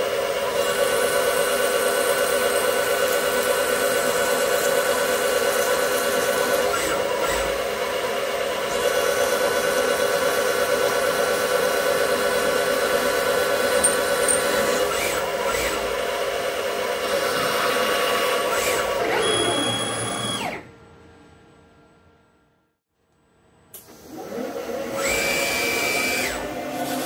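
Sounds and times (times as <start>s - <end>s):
lathe spindle motor whine: 0.0s - 20.6s, 24.0s - 27.0s
drill boring into metal: 0.5s - 7.8s, 8.6s - 16.0s.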